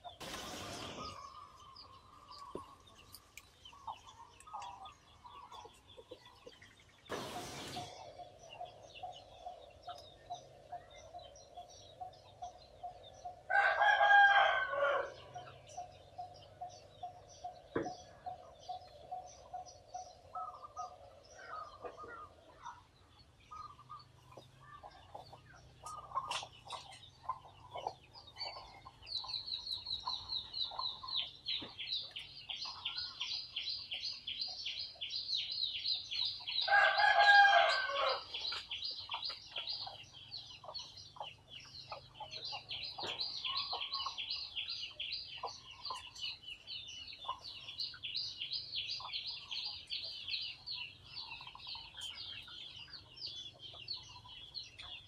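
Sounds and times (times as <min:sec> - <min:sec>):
rooster crowing: 0:13.5 - 0:15.2, 0:36.7 - 0:38.3.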